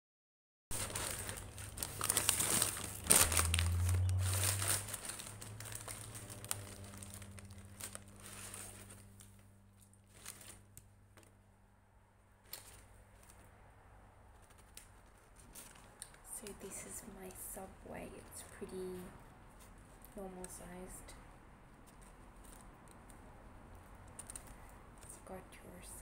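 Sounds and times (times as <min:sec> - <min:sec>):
paper crackles: 0:00.7 - 0:11.3, 0:12.4 - 0:13.5, 0:14.3 - 0:16.9, 0:21.7 - 0:25.4
paper wrapper crinkling: 0:00.7 - 0:11.3, 0:12.4 - 0:13.5, 0:14.3 - 0:16.9, 0:21.8 - 0:25.4.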